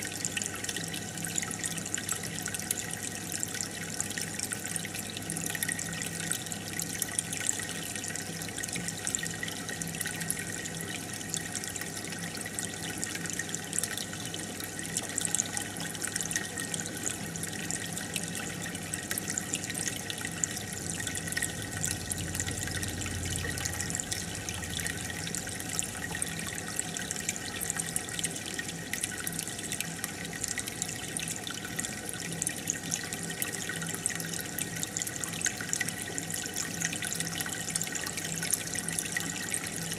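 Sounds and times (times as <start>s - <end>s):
aquarium water bubbling: 0.0s - 39.9s
faint low hum: 20.6s - 26.8s.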